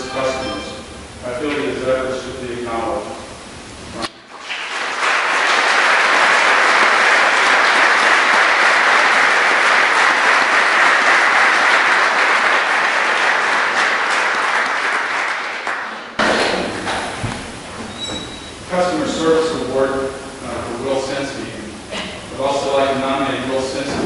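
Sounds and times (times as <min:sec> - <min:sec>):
audience applauding: 0:04.3 - 0:17.0.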